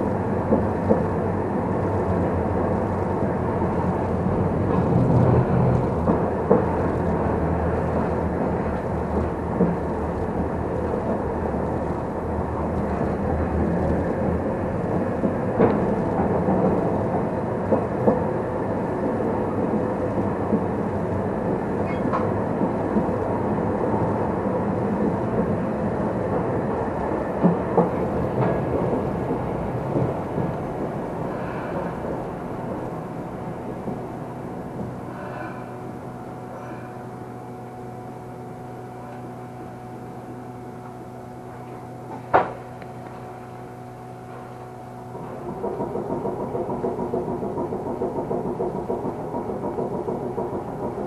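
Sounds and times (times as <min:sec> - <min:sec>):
tram motors and wheels rumbling: 0:00.0 - 0:51.0.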